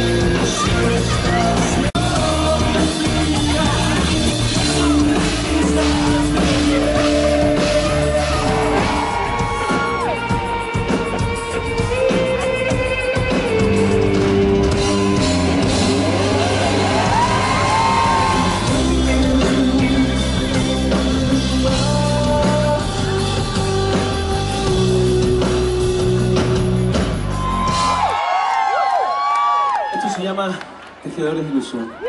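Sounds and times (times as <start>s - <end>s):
man singing: 0.0s - 9.4s, 14.8s - 27.0s
electric guitar: 0.0s - 28.1s
bass guitar: 0.0s - 28.3s
drums: 0.0s - 30.1s.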